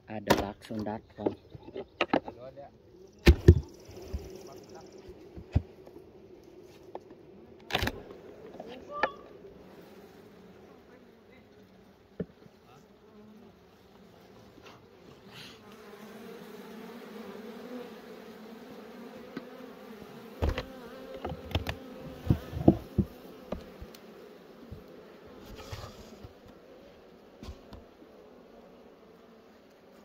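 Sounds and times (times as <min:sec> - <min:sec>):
honeybees buzzing: 0:00.5 - 0:30.0
hive equipment knocking: 0:03.2 - 0:04.4, 0:20.4 - 0:24.0.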